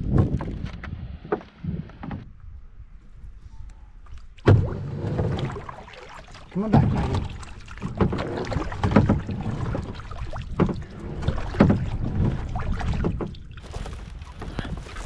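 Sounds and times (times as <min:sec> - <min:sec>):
wind rumble on microphone: 0:00.0 - 0:05.8, 0:06.7 - 0:15.0
water slapping against kayak hull: 0:04.0 - 0:15.0.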